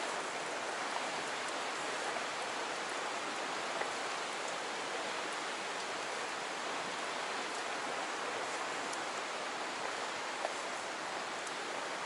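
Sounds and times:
water flowing over rock: 0.0 - 12.0.

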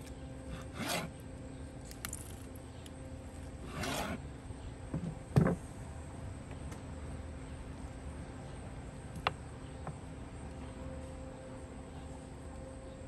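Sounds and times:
knife scraping through meat: 0.5 - 1.2, 3.6 - 4.2.

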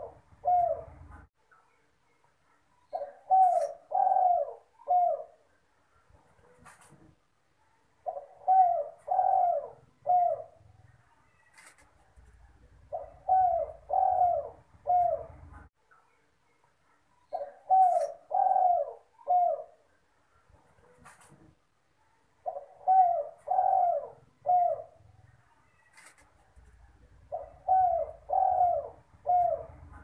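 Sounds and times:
dove cooing: 0.0 - 1.3, 2.9 - 5.4, 8.0 - 10.7, 12.5 - 15.7, 17.3 - 19.8, 22.4 - 25.1, 26.7 - 30.0.

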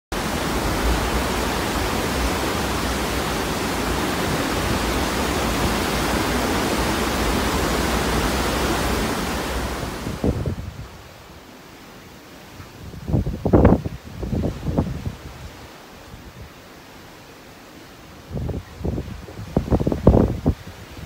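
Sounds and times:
steady rushing noise: 0.1 - 11.7.

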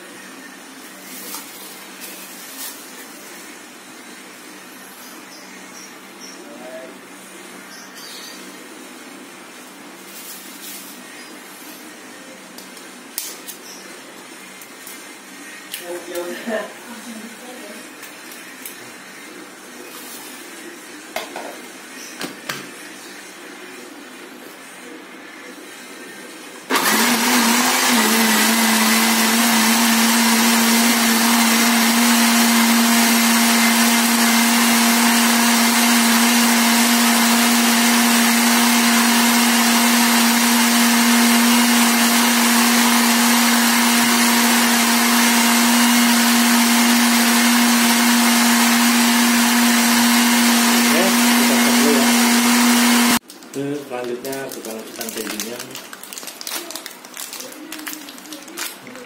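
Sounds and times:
electric blender running: 26.7 - 53.2.

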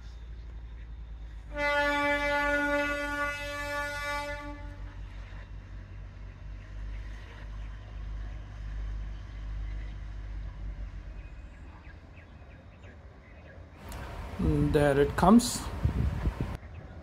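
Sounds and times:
locomotive horn: 1.5 - 5.2.

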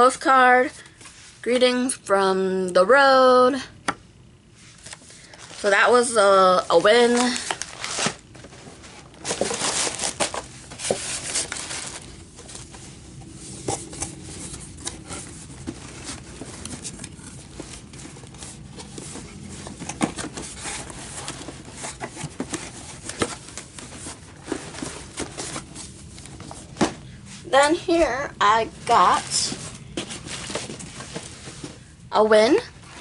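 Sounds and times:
faint low hum: 0.0 - 33.0
paper and plastic packaging rustling: 4.7 - 27.2, 28.8 - 31.9.

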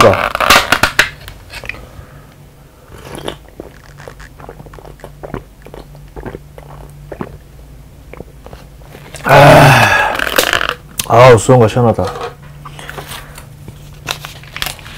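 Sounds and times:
swallowing: 2.8 - 10.7.

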